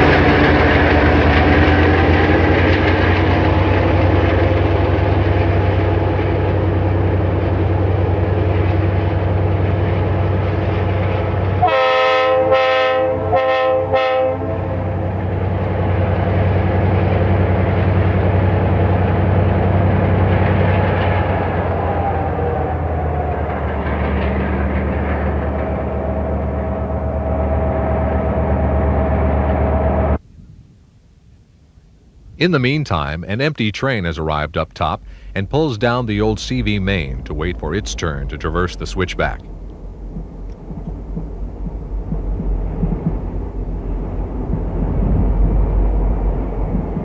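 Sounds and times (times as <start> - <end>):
locomotive engine drone: 0.0 - 30.2, 32.4 - 47.0
locomotive air horn blasts: 11.6 - 15.2, 25.4 - 30.2.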